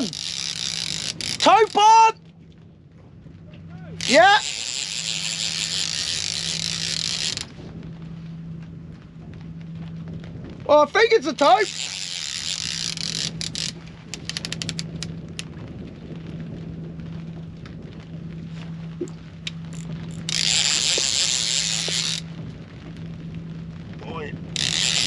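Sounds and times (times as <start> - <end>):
fishing reel clicking: 0.0 - 1.8, 4.0 - 7.5, 11.5 - 15.5, 19.4 - 22.3, 24.6 - 25.0
low hum: 0.0 - 25.0.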